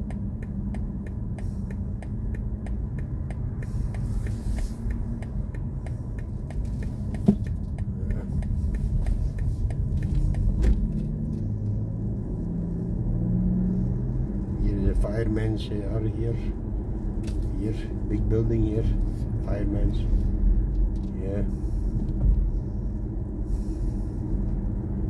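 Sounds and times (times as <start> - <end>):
light ticking: 0.0 - 11.8
road and tyre rumble: 0.0 - 25.0.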